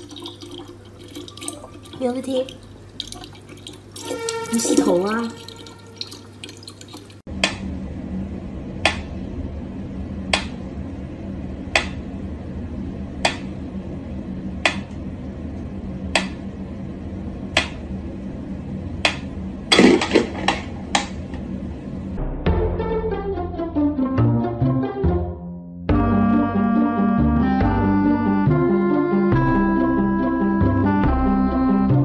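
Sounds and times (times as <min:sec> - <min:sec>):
low steady hum: 0:00.0 - 0:22.4.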